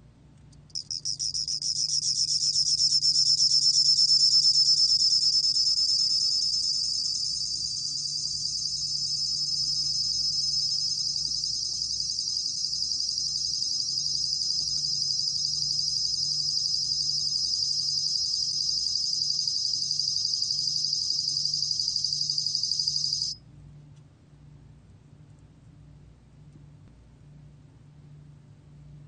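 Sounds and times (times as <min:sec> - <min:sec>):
cricket trilling: 0:00.7 - 0:23.4.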